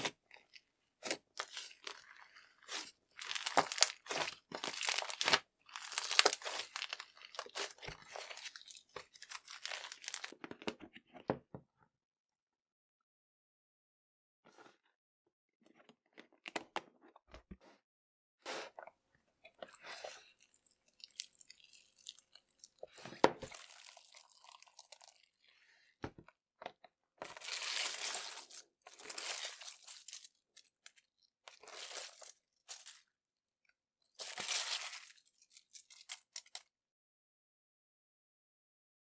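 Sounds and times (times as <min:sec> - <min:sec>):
slime squishing and crackling: 0:00.0 - 0:10.4, 0:20.2 - 0:25.2, 0:27.2 - 0:33.0, 0:34.2 - 0:36.6.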